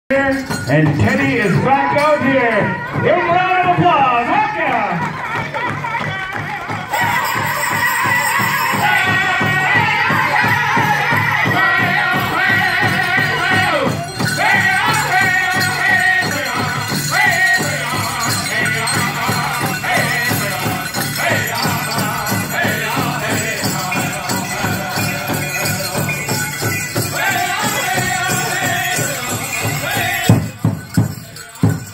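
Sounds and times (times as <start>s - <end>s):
bells jingling: 0.1s - 31.9s
group singing in high wavering voices: 5.0s - 31.9s
big drum beating: 6.4s - 31.9s.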